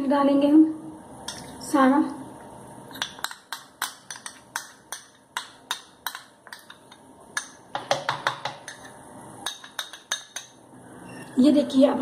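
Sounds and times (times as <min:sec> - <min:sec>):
metal spoon clinking on glass bowl: 0:03.0 - 0:10.6.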